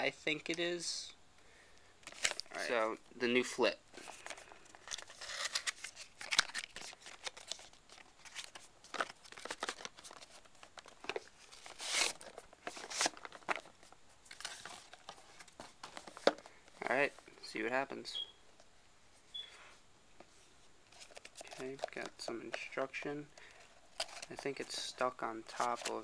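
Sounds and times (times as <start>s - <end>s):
hands opening packaging: 2.0s - 2.5s, 4.0s - 16.4s, 23.4s - 24.4s.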